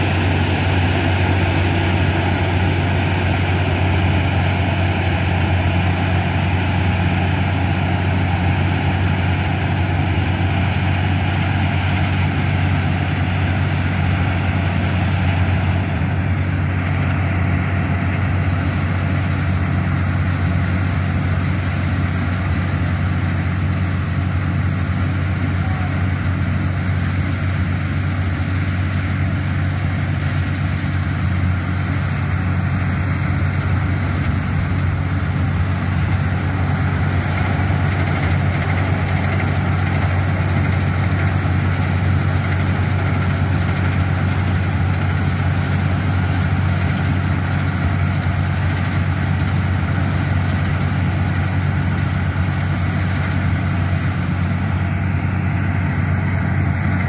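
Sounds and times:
combine harvester engine hum: 0:00.0 - 0:57.0
threshing machinery rushing: 0:28.6 - 0:54.8.

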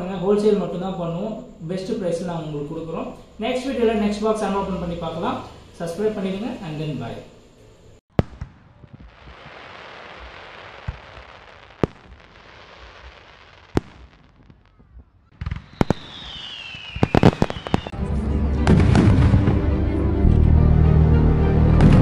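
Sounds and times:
fireworks hissing: 0:08.0 - 0:18.0
falling firework whistle: 0:08.1 - 0:18.0
fireworks bangs: 0:08.1 - 0:18.0, 0:18.6 - 0:19.7
bass-heavy music: 0:18.0 - 0:22.0.

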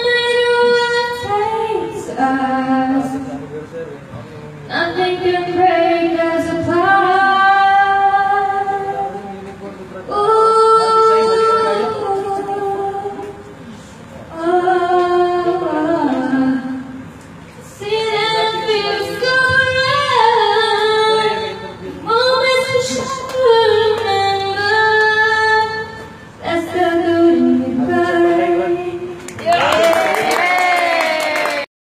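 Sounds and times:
woman singing: 0:00.0 - 0:03.2, 0:04.7 - 0:09.0, 0:10.1 - 0:13.4, 0:14.3 - 0:16.9, 0:17.8 - 0:21.5, 0:22.1 - 0:29.2.

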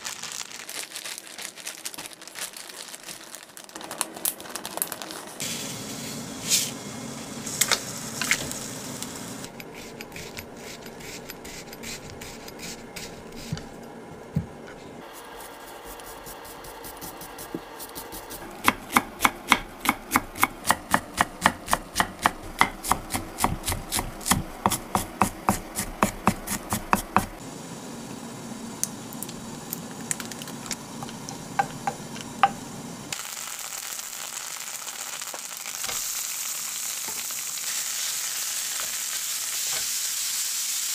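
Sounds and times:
knife chopping on wooden board: 0:16.6 - 0:27.4.

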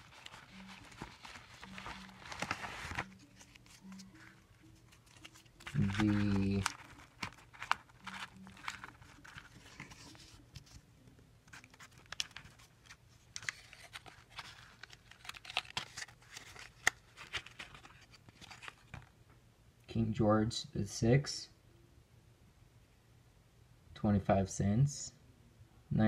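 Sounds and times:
paper rustling and crinkling: 0:00.0 - 0:10.8, 0:11.4 - 0:19.1.

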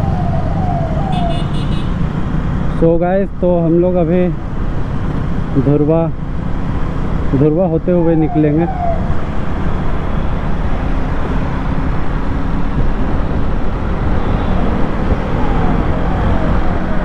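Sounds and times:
wind noise on microphone: 0:08.8 - 0:17.0.

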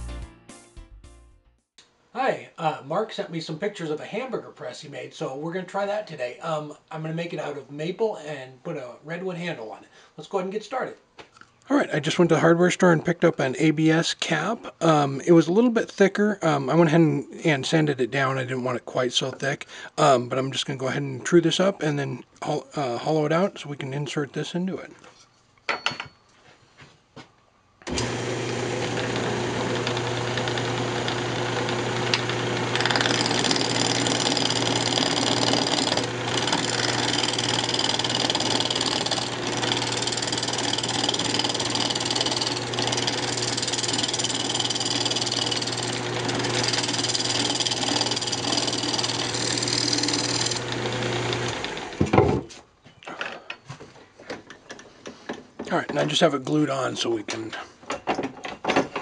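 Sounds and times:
gouge scraping spinning wood: 0:27.9 - 0:52.1
wood lathe motor hum: 0:27.9 - 0:52.1.

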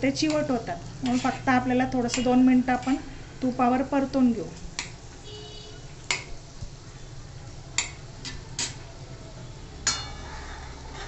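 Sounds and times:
metal spoon clinking against pan: 0:02.1 - 0:03.0, 0:09.8 - 0:10.4.

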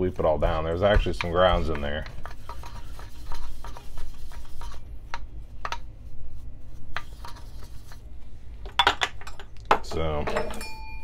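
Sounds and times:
brush clicking and tapping in grinder: 0:00.0 - 0:05.9.

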